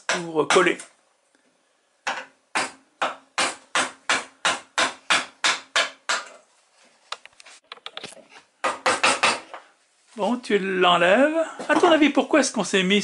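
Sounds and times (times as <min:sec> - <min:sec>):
wooden mallet striking gouge: 0:02.0 - 0:06.4, 0:08.6 - 0:09.6.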